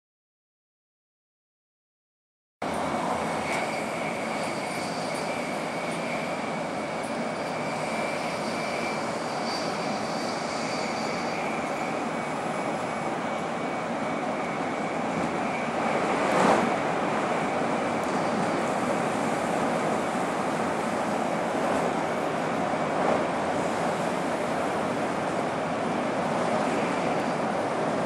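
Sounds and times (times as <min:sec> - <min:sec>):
train running rumble and hiss: 0:02.6 - 0:28.0
faint thin whine: 0:02.8 - 0:15.9.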